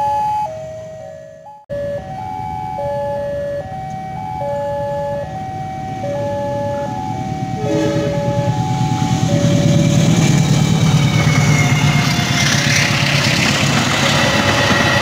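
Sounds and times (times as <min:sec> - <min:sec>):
level crossing electronic alarm: 0:00.0 - 0:10.5
train rumble: 0:05.0 - 0:15.0.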